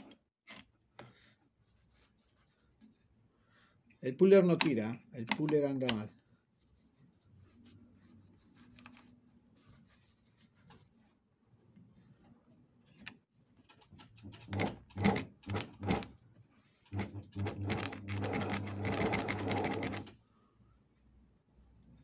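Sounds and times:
industrial sewing machine stitching: 14.0s - 16.1s, 16.9s - 20.1s.

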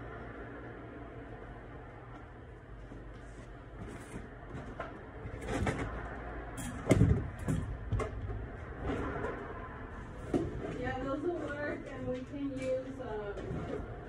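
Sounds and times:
knocks and bumps: 3.8s - 9.4s.

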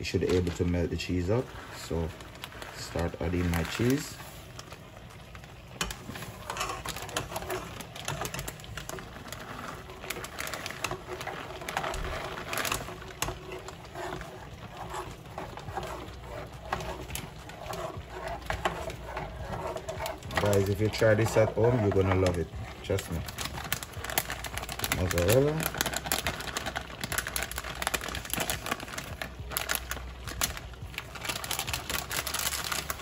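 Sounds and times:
plastic bag crinkling: 0.0s - 33.0s
spoon scraping metal pot: 5.8s - 22.4s.

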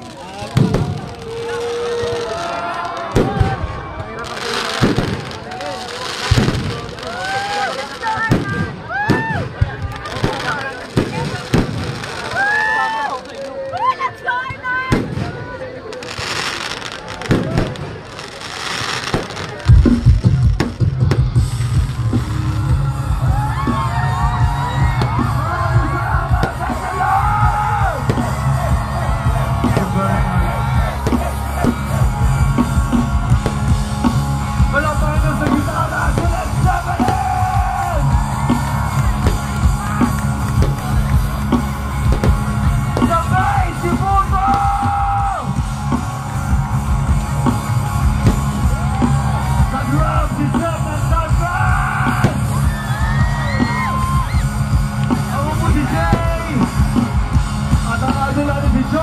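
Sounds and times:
crowd yelling and singing along: 0.0s - 59.0s
rock band playing live: 19.4s - 59.0s.

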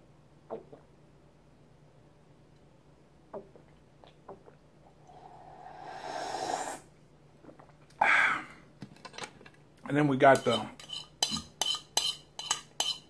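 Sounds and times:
man slurping milk: 5.0s - 8.4s
man breathing out: 5.1s - 6.8s, 8.0s - 8.6s.

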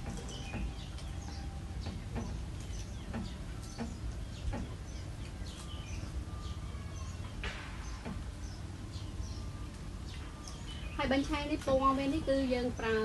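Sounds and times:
chickens clucking: 0.0s - 8.7s
small birds chirping: 0.0s - 13.0s.

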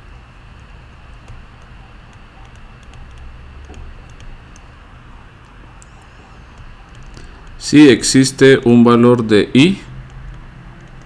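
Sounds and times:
steady low hum: 0.0s - 11.0s
stylus clicking on tablet screen: 0.6s - 4.8s, 5.4s - 7.6s, 10.0s - 11.0s.

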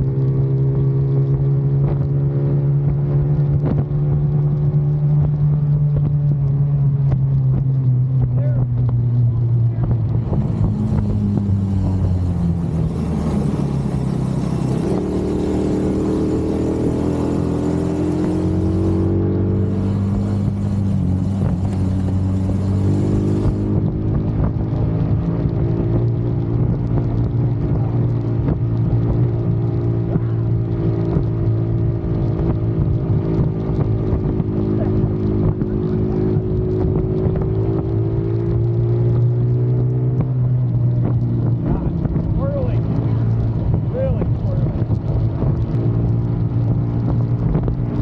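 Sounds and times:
small petrol engine running: 10.2s - 24.0s.

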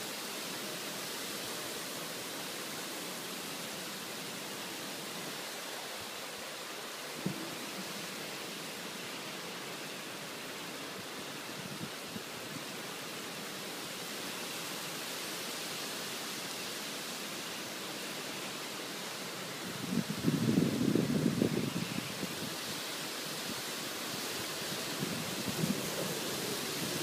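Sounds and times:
heavy rain pouring: 19.0s - 27.0s
wind buffeting microphone: 24.2s - 27.0s.

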